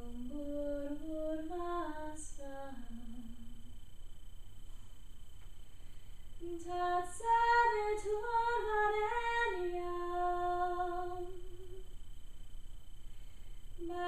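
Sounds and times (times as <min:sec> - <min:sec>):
woman singing unaccompanied: 0:00.0 - 0:03.8, 0:06.4 - 0:11.9, 0:13.8 - 0:14.0.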